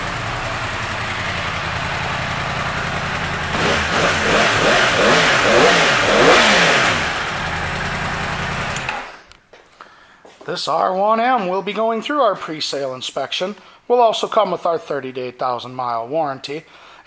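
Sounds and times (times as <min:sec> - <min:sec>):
motorcycle engine idling and revving: 0:00.0 - 0:09.2.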